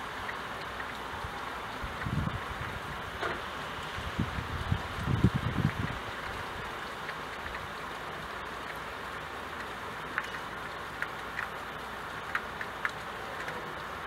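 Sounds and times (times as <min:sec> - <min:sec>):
raindrops ticking on window glass: 0:00.0 - 0:14.0
steady rain falling: 0:00.0 - 0:14.0.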